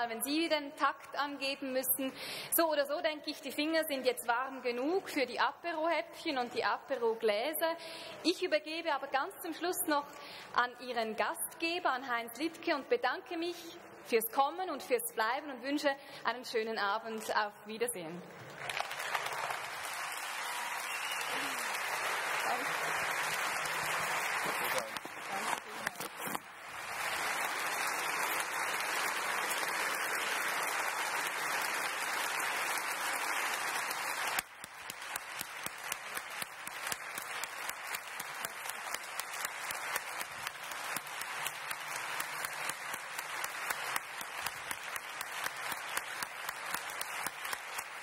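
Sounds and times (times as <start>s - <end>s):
audience applauding: 18.4s - 48.0s.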